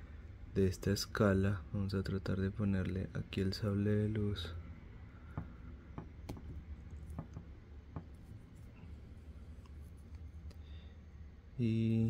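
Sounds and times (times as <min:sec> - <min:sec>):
faint low hum: 0:00.0 - 0:12.0
plastic clicks and taps: 0:05.3 - 0:08.2.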